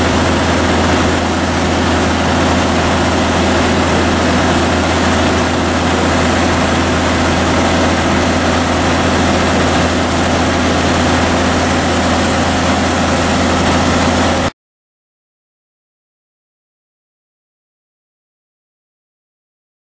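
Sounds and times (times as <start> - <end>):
combine harvester running: 0.0 - 14.5
grain pouring from auger: 0.0 - 14.5.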